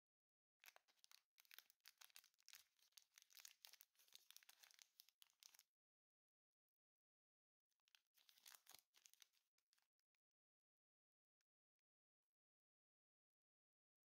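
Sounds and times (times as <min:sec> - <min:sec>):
plastic wrapper crinkling and tearing: 0:00.6 - 0:05.6, 0:07.9 - 0:09.8.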